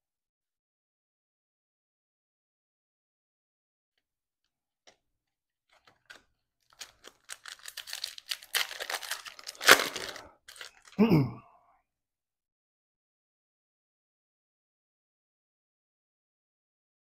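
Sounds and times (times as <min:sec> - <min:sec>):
plastic wrapper crinkling: 0:05.7 - 0:11.0
loud wrapper rip: 0:06.0 - 0:11.0.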